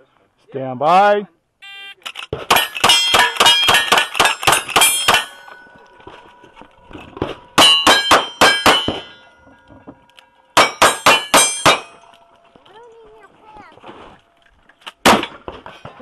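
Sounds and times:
steel plate target ringing: 0:02.5 - 0:06.0, 0:07.6 - 0:09.7, 0:10.6 - 0:12.4
rifle shots: 0:15.0 - 0:15.5.

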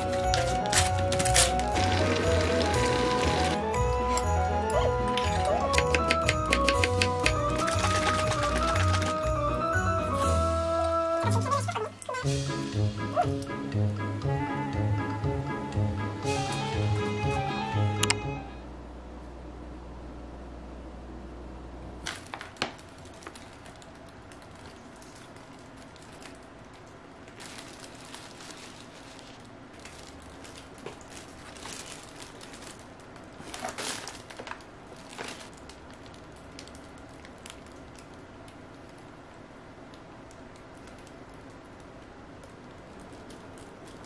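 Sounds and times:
plastic bags rustling: 0:00.0 - 0:05.0, 0:07.3 - 0:12.1, 0:22.0 - 0:38.2, 0:42.4 - 0:44.0.

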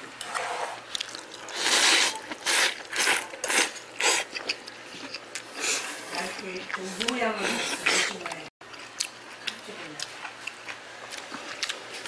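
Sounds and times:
person slurping noodles: 0:01.5 - 0:04.3.

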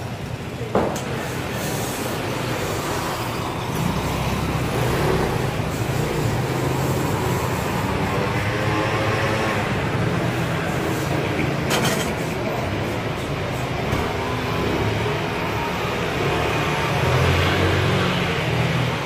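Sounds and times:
gas burner flame rushing: 0:00.9 - 0:08.5.

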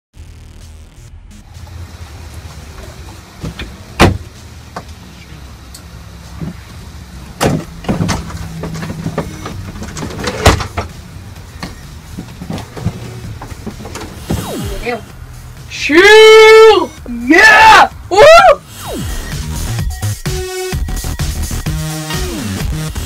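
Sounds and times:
steady low hum: 0:00.2 - 0:15.7
sharp knocks and thumps: 0:02.7 - 0:04.9, 0:07.4 - 0:11.0.

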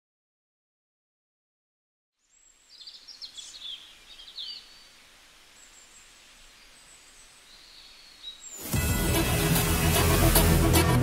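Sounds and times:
small birds chirping: 0:02.2 - 0:08.8
faint outdoor hiss: 0:02.2 - 0:10.5
high whistled bird calls: 0:02.3 - 0:08.8.

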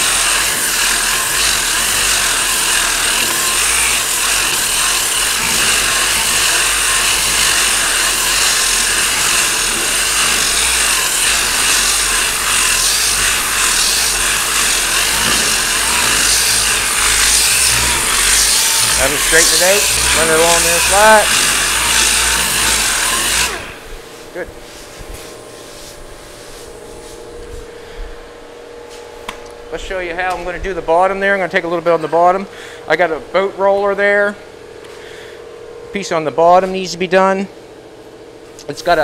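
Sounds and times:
sanding scratching noise: 0:00.0 - 0:27.7.

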